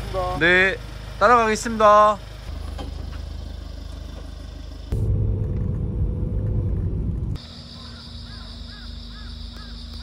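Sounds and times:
vehicle engine humming: 0:00.0 - 0:10.0
loud low rumble: 0:04.9 - 0:07.7.

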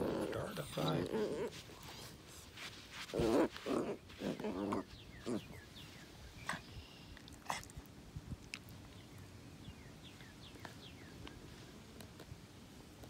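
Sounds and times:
puppies growling and yelping: 0:00.0 - 0:01.9, 0:03.1 - 0:05.6.

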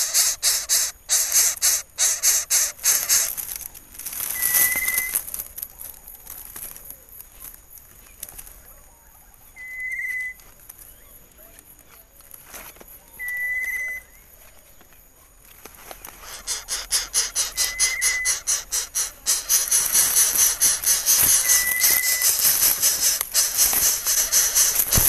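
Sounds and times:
wavering whistle call: 0:00.0 - 0:03.3, 0:04.4 - 0:05.1, 0:13.2 - 0:14.2, 0:16.2 - 0:25.0
rhythmic rasping hiss: 0:00.0 - 0:03.4, 0:16.0 - 0:25.0.

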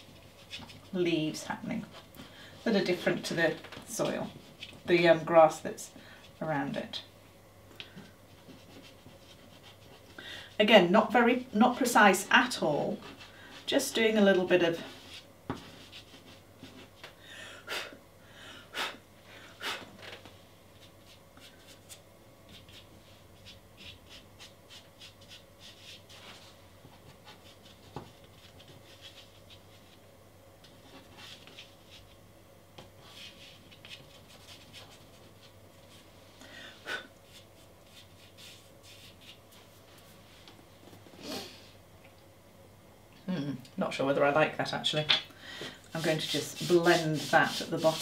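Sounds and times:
pastel scratching on paper: 0:08.4 - 0:10.1, 0:20.8 - 0:26.5, 0:27.1 - 0:30.0, 0:33.0 - 0:35.5, 0:37.3 - 0:39.4, 0:46.0 - 0:48.0
louder pastel scrapes: 0:46.0 - 0:48.0.

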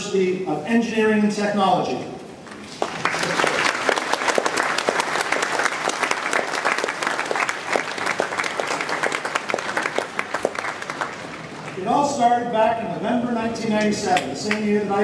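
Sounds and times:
audience applauding: 0:02.5 - 0:11.8.

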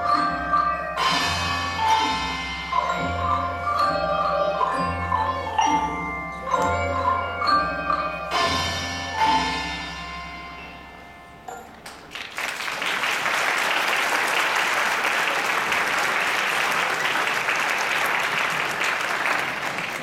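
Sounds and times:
xylophones and glockenspiels: 0:00.0 - 0:12.1
audience applauding: 0:11.8 - 0:20.0.

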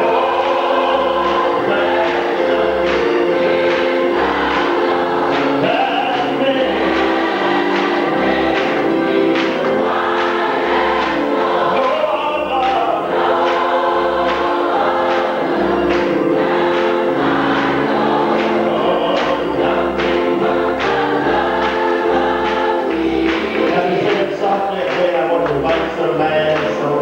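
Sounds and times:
church choir singing gospel: 0:00.0 - 0:27.0
hand claps: 0:00.1 - 0:27.0.

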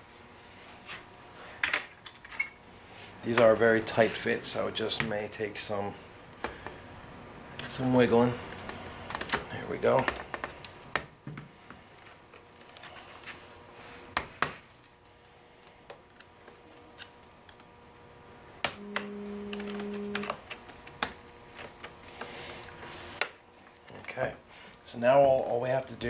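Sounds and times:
low steady tone: 0:18.7 - 0:20.4.

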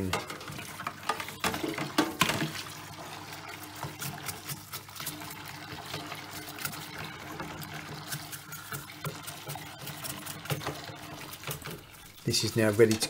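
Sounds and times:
tap water running into sink: 0:00.0 - 0:13.0
toothbrush scrubbing plastic: 0:00.0 - 0:13.0.

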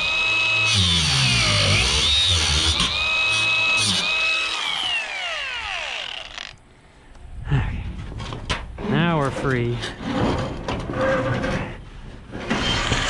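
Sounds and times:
angle grinder grinding metal: 0:00.0 - 0:06.6.

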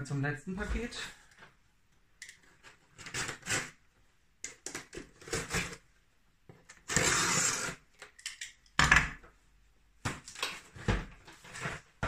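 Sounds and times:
long cardboard rasp: 0:06.9 - 0:07.8
cardboard scraping and rustling: 0:10.7 - 0:12.0.

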